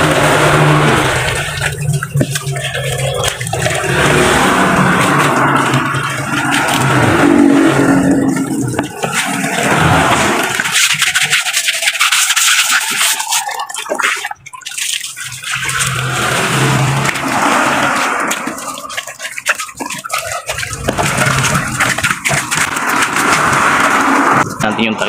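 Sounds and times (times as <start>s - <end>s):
water splashing and pouring: 0.0s - 25.0s.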